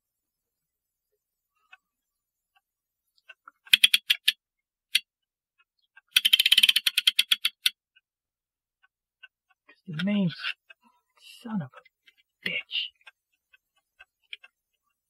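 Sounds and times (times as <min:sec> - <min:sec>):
ratchet clicking: 0:06.1 - 0:07.7.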